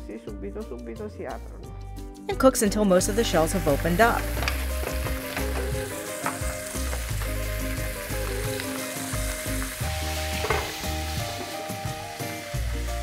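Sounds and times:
light background music: 0.0s - 13.0s
shellfish sizzling in a frying pan: 3.2s - 13.0s.

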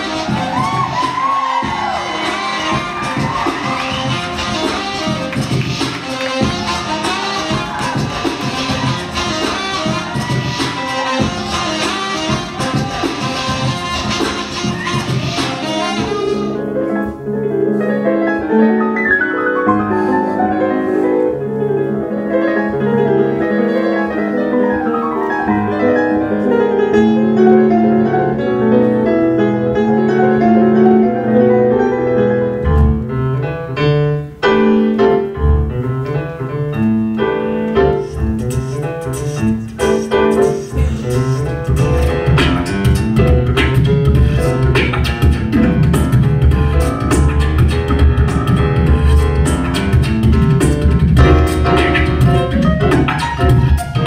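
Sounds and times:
grand piano melody: 0.0s - 54.0s
beatboxing into a microphone: 38.0s - 54.0s.

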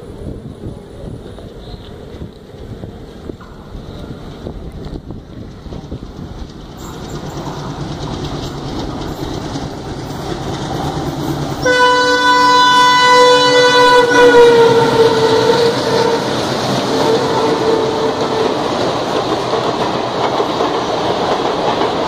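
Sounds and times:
diesel locomotive rumble: 0.0s - 22.0s
wheels clacking over rail joints: 0.6s - 12.2s, 13.1s - 22.0s
locomotive horn: 11.6s - 18.8s.

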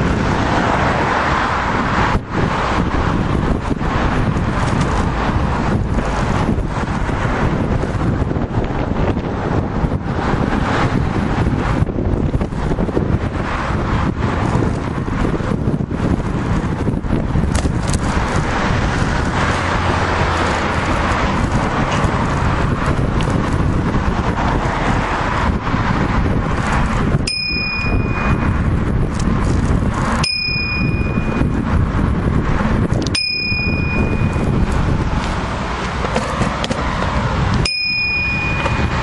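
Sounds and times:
bicycle tyre noise: 0.0s - 39.0s
wind rush on microphone: 0.0s - 39.0s
bicycle bell ringing: 27.1s - 28.9s, 30.2s - 31.8s, 33.0s - 35.0s, 37.6s - 39.0s.

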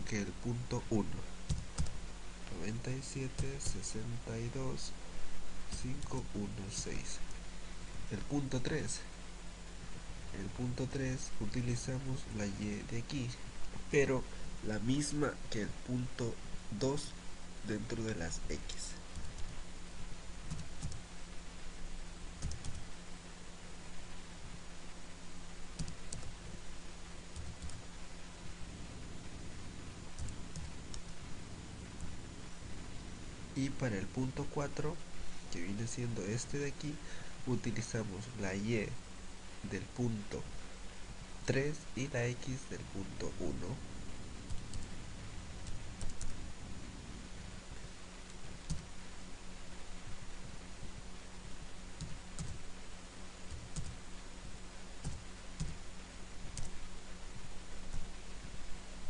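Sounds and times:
electrical hum and hiss: 0.0s - 59.0s
computer keyboard keystrokes: 1.5s - 2.0s, 20.5s - 21.0s, 22.4s - 22.8s, 25.8s - 26.3s, 27.4s - 27.8s, 53.5s - 54.0s
keyboard typing: 1.5s - 2.0s, 20.5s - 21.0s, 22.4s - 22.8s, 25.8s - 26.3s, 27.4s - 27.8s, 30.2s - 31.2s, 44.5s - 44.9s, 45.6s - 46.4s, 48.6s - 48.9s, 52.0s - 52.6s, 53.5s - 54.0s, 55.0s - 55.8s.

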